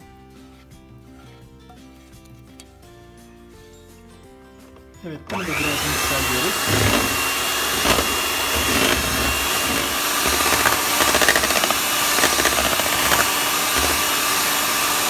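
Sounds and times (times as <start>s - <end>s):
electric hand mixer whisking: 5.3s - 15.0s.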